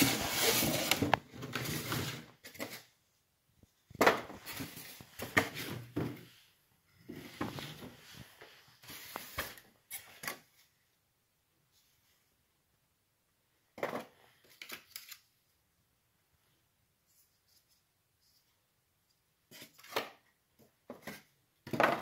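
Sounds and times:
foam rubbing and scraping: 0.0s - 2.3s.

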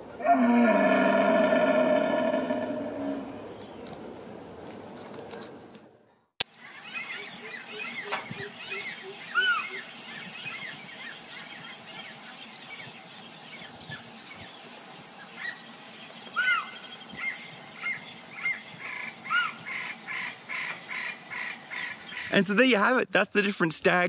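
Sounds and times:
deer mewing calls: 0.1s - 3.6s.

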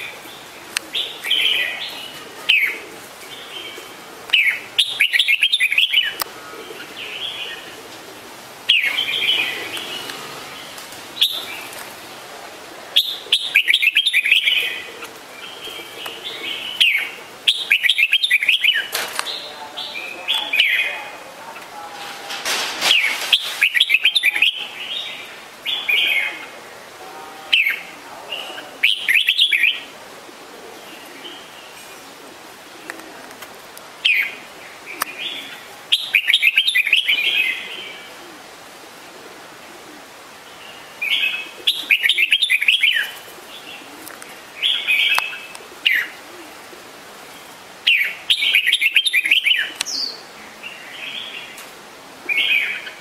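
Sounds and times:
bird chirping song: 0.0s - 7.7s, 8.7s - 11.7s, 13.0s - 21.0s, 34.9s - 38.1s, 40.5s - 43.9s, 47.8s - 51.6s.

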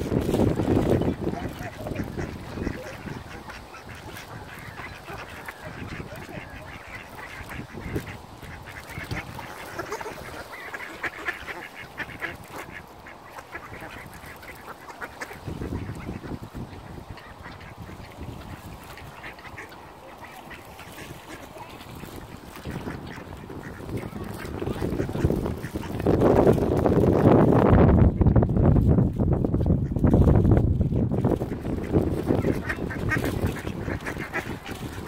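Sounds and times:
ducks quacking: 0.0s - 27.2s, 31.0s - 35.0s.

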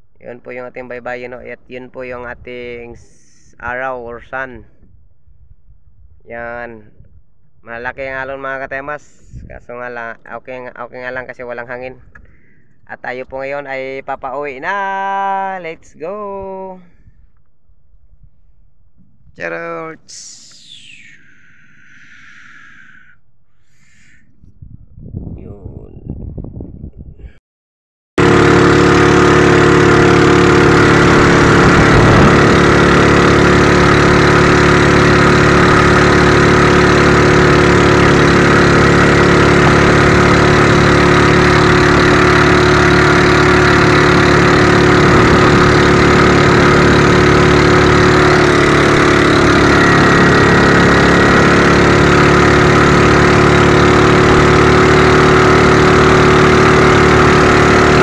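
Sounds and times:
small boat engine running: 28.2s - 58.0s.

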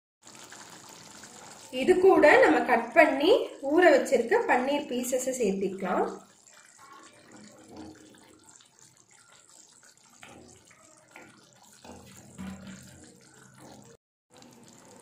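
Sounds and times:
gravy simmering in a pan: 0.2s - 15.0s
soft plops into gravy: 6.0s - 15.0s.

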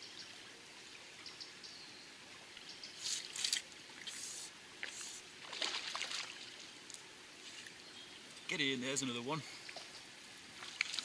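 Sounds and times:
river water running over stones: 2.1s - 11.0s
short hissing swishes: 3.0s - 5.3s.

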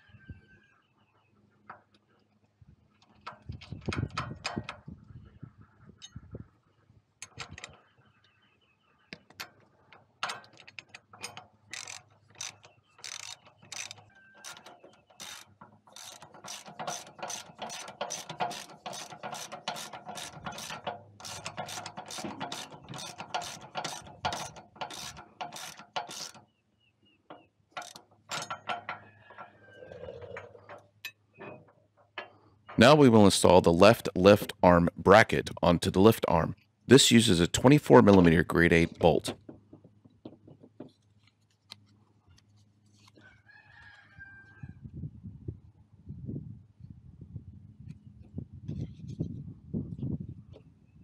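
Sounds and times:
socket ratchet clicking: 10.2s - 26.4s, 27.8s - 28.7s.

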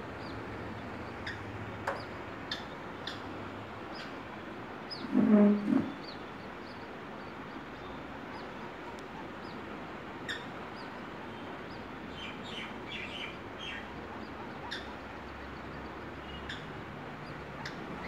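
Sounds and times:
steady background hiss: 0.0s - 18.0s
chicks peeping: 4.9s - 18.0s.

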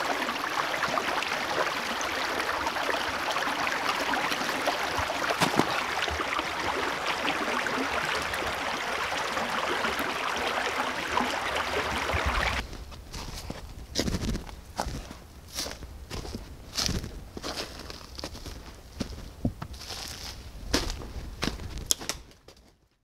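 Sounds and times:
creek water rushing: 0.0s - 12.6s.

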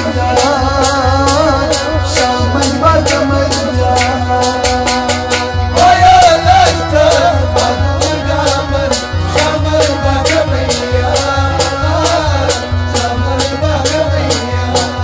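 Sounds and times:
goblet drum beat: 0.0s - 15.0s.

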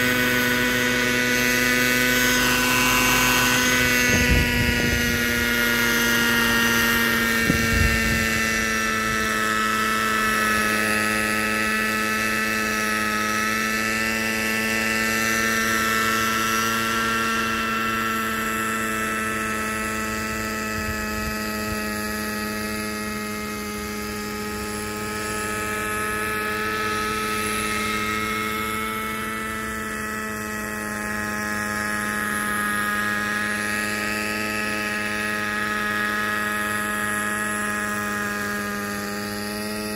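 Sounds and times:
wind rumble on microphone: 0.0s - 12.0s, 19.1s - 23.5s
model helicopter engine and rotors: 0.0s - 39.9s.

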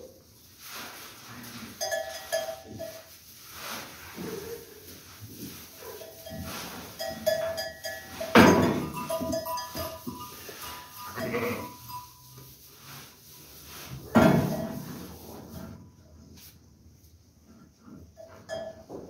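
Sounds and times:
sheep bleating: 11.0s - 11.9s.

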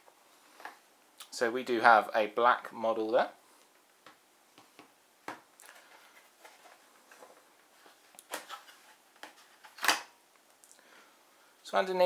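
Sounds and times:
cardboard rustling: 5.7s - 9.9s.

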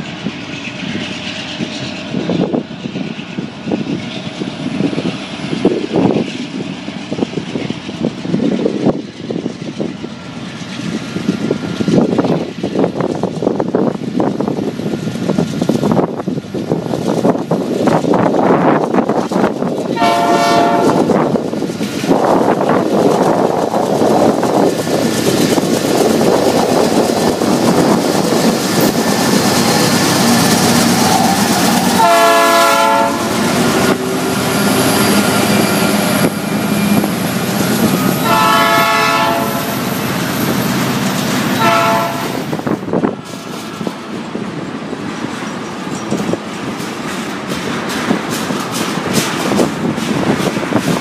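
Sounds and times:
wheels clickety-clack: 0.0s - 32.0s, 39.3s - 51.0s
freight train rumbling over rails: 0.0s - 51.0s
train horn blasts: 20.0s - 21.1s, 32.0s - 33.6s, 38.1s - 39.8s, 41.6s - 42.5s.

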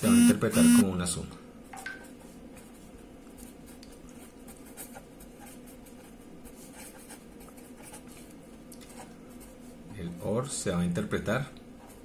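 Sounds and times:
low steady hum: 0.0s - 12.0s
pen scratching on paper: 4.5s - 8.3s.

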